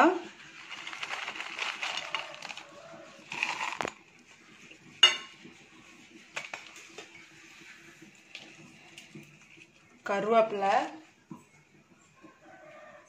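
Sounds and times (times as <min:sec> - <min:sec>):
dried chillies rustling: 0:00.0 - 0:04.1.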